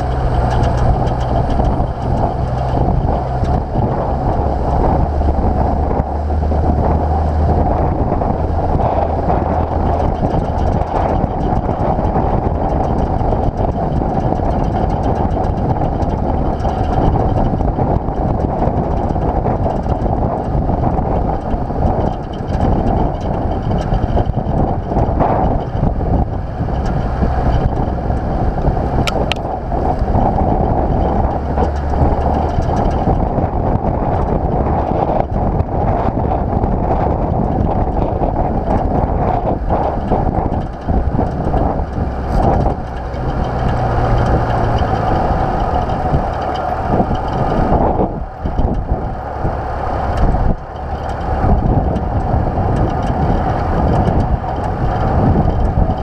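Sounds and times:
diesel engine running: 0.0 - 56.0
wind rushing over microphone: 0.0 - 56.0
sharp ticks: 8.3 - 33.3.

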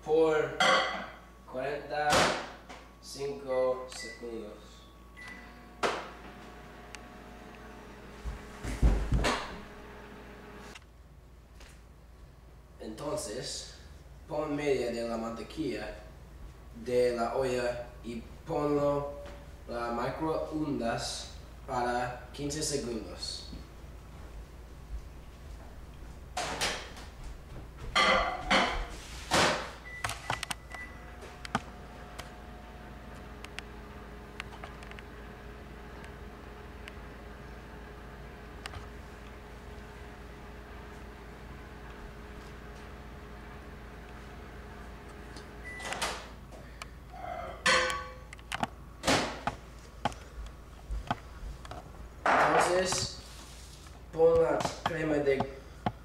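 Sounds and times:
microwave humming: 0.7 - 10.8, 25.6 - 53.2
microwave beep: 3.9 - 5.8, 29.8 - 31.4, 45.6 - 46.2
microwave door shutting: 8.5 - 9.7.

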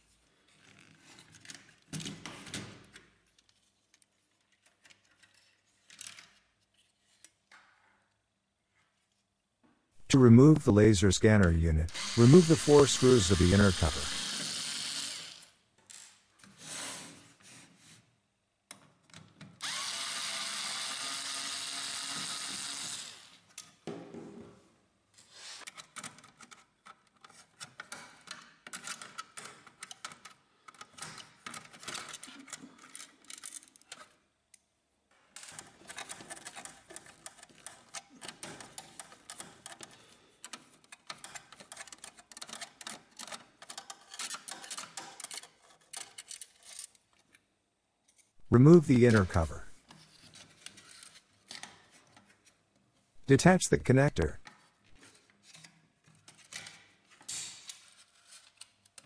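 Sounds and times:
small clicks and rattles: 0.5 - 7.6, 25.6 - 34.6, 35.2 - 47.4
electric screwdriver whirring: 11.9 - 15.5, 19.6 - 23.4.

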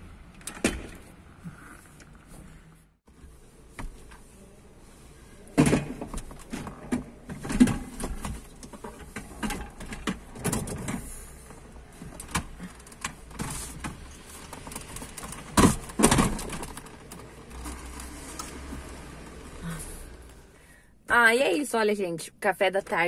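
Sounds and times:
metal frame clicks and rattles: 12.1 - 18.6.

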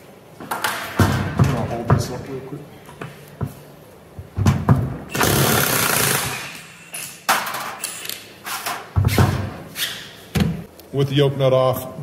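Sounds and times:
impact wrench hammering: 4.4 - 7.8.

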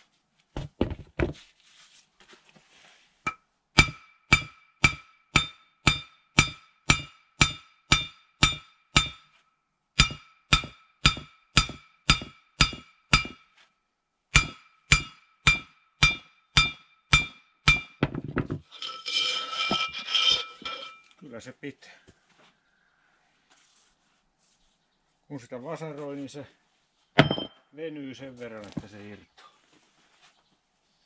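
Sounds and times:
hammer blows ringing on steel: 3.8 - 9.3, 10.0 - 13.5, 14.3 - 18.0
metal rattling clatter: 18.6 - 21.1.

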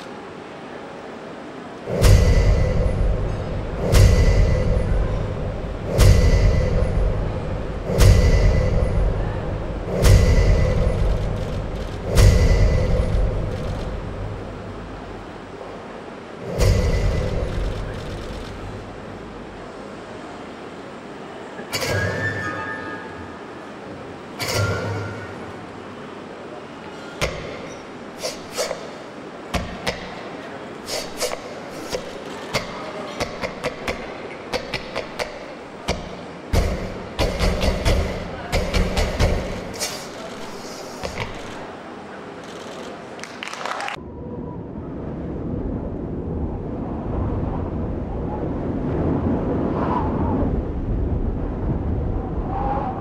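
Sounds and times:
noisy rushing texture: 0.0 - 44.0
low rumbling noise: 0.0 - 53.0
sharp percussive hits: 1.9 - 14.7, 16.4 - 19.0, 30.9 - 40.2.

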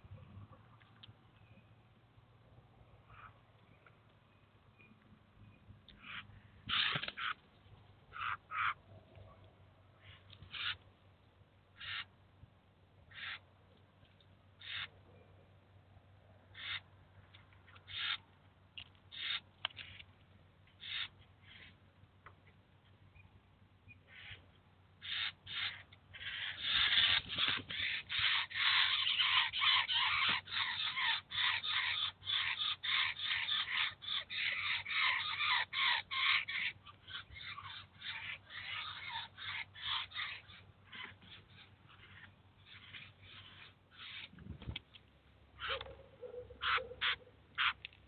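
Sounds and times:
fledgling birds harsh begging calls: 3.0 - 3.5, 5.9 - 7.4, 8.1 - 8.9, 10.0 - 10.8, 11.7 - 12.1, 13.0 - 13.5, 14.5 - 14.9, 16.4 - 17.0, 17.6 - 18.3, 19.1 - 20.1, 20.7 - 21.9, 23.9 - 44.3, 45.5 - 48.0.

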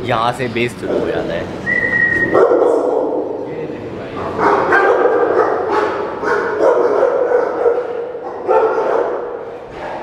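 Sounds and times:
many dogs barking: 2.4 - 3.3, 4.2 - 10.0.

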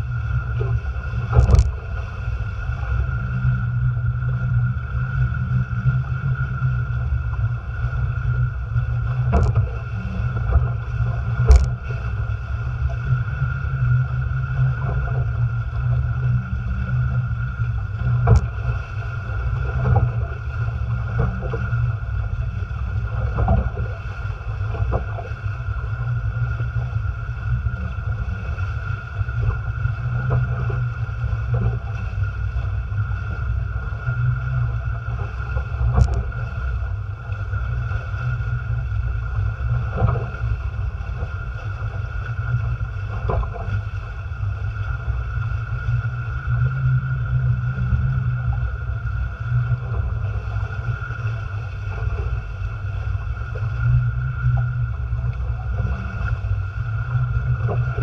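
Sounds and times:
water rushing along hulls: 0.0 - 58.0
wind rumbling on microphone: 0.0 - 58.0.

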